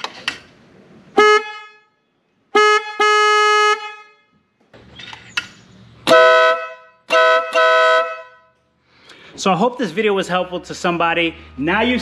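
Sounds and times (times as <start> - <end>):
car horn beeps: 1.2 - 4.5, 6.1 - 8.7
loud chord air horn: 6.1 - 8.5.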